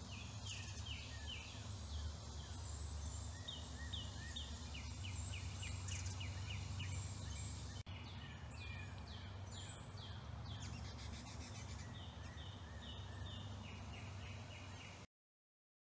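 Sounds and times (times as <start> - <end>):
steady low hum: 0.0 - 15.0
songbirds calling: 0.0 - 15.1.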